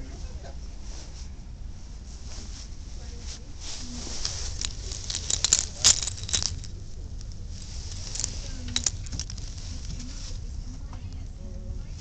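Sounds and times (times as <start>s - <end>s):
metal clips and keyrings jingling: 4.1s - 10.1s.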